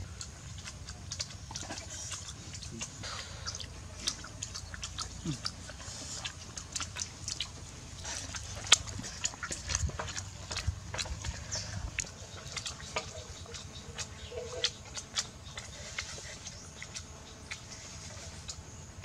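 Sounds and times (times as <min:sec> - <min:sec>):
people chewing with wet smacks: 0:00.0 - 0:19.0.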